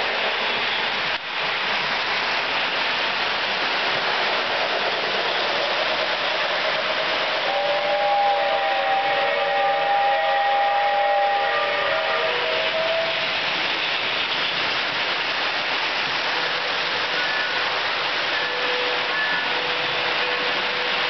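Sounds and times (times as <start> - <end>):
model trains running on track: 0.0 - 21.0
toy train whistle chord: 7.5 - 13.2.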